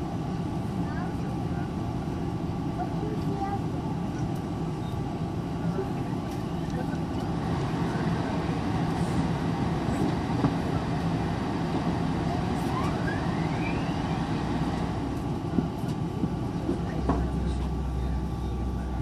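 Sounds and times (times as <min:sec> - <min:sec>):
airplane cabin drone: 0:00.0 - 0:19.0
faint rising whistle: 0:12.6 - 0:15.0.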